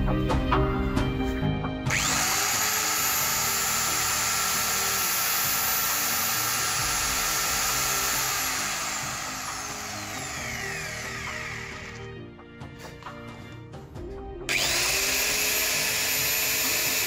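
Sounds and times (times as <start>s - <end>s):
electric motor whining: 1.9s - 12.2s, 14.5s - 17.0s.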